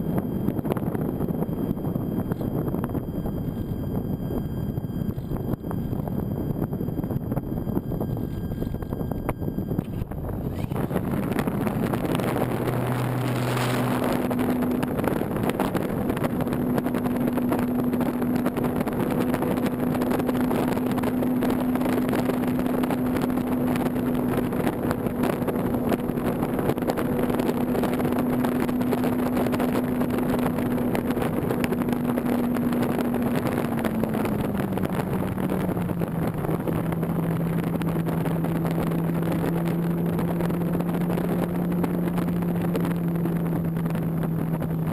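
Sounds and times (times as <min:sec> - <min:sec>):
electric motor and propeller hum: 0:00.0 - 0:44.9
wind rushing past: 0:00.0 - 0:44.9.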